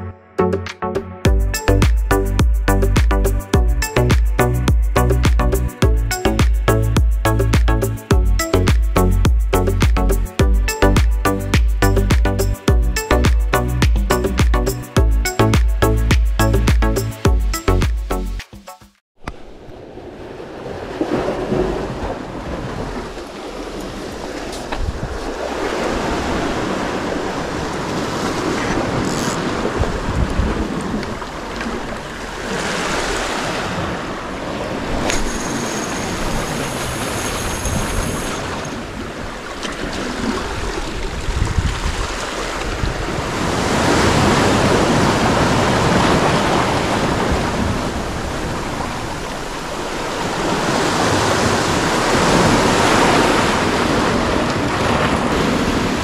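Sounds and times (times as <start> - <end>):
surf breaking against rocks: 19.3 - 38.8
wind on microphone: 23.8 - 56.0.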